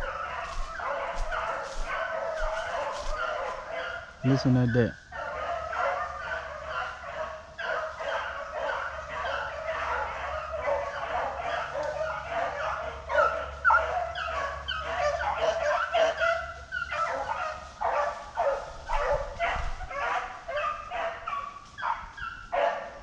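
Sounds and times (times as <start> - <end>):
dogs baying and barking: 0.0 - 23.0.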